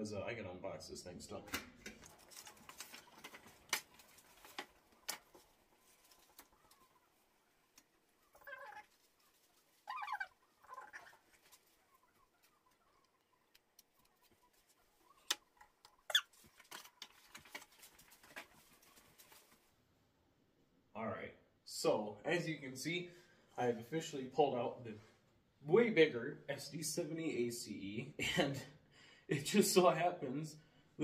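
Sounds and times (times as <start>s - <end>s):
plastic packaging rustling: 1.8s - 6.6s
short squeaky warbles: 9.8s - 11.2s, 15.1s - 16.4s.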